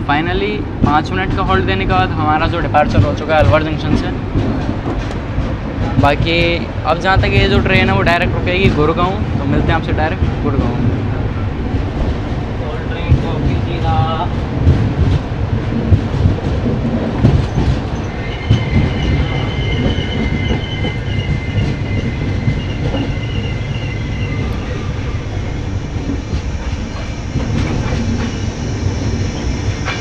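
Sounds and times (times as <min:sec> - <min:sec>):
train rumbling on rails: 0:00.0 - 0:30.0
high wheel squeal: 0:18.0 - 0:26.1.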